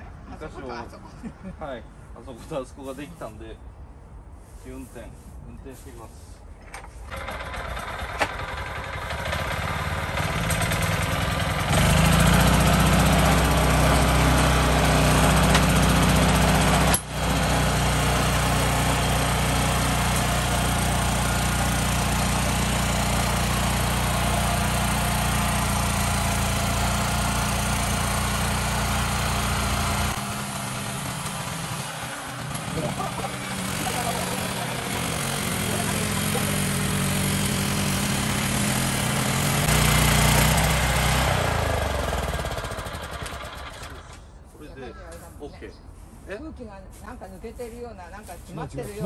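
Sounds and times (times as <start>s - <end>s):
cultivator engine running: 7.1s - 44.2s.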